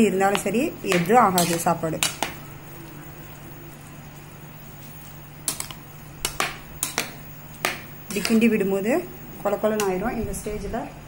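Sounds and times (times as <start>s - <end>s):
metal ladle stirring in pot: 0.3s - 2.4s, 5.4s - 8.6s.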